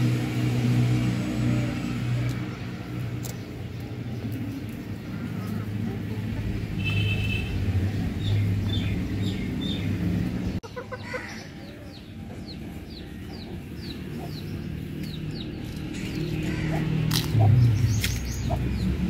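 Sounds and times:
chickens clucking: 3.2s - 6.8s, 8.6s - 19.0s.

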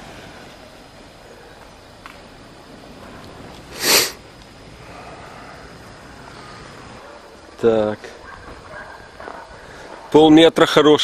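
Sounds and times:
faint background noise: 0.0s - 11.0s
short sharp sniff: 3.7s - 4.2s.

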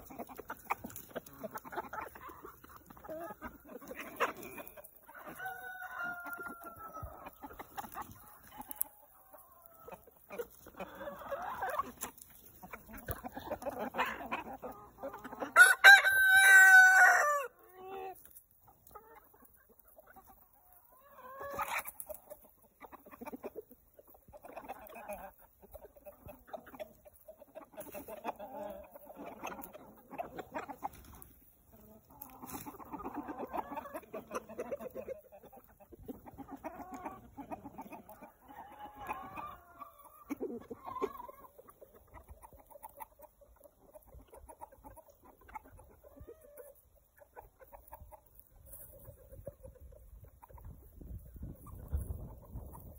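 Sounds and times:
chickens clucking and murmuring: 0.0s - 52.9s
rooster crowing: 5.4s - 6.8s, 15.6s - 17.5s.

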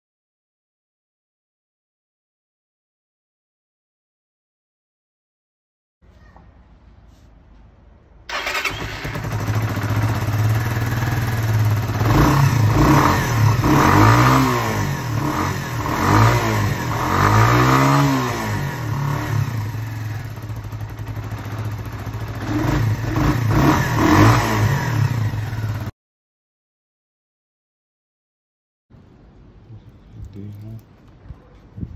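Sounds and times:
motorcycle engine idling and revving: 8.3s - 25.9s.

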